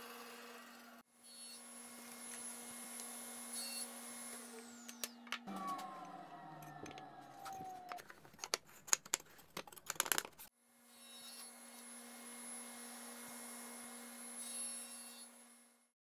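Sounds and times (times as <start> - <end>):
table saw motor whining down: 0.0 - 8.2.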